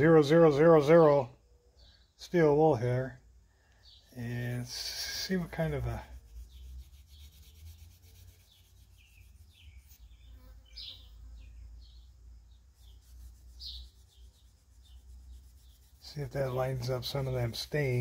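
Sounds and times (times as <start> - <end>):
steel wool rubbing on wood: 4.6 - 10.1, 12.6 - 18.0.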